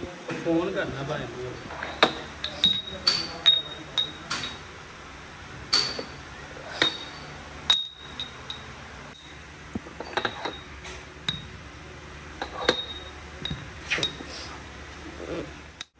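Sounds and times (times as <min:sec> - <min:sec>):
steel parts clinking together: 0:01.6 - 0:04.7, 0:05.7 - 0:10.7, 0:12.4 - 0:14.2.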